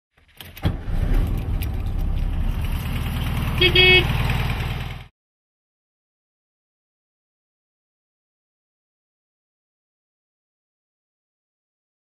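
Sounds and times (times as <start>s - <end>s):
car engine lumpy idle: 0.7s - 5.1s
car horn beep: 3.5s - 4.3s.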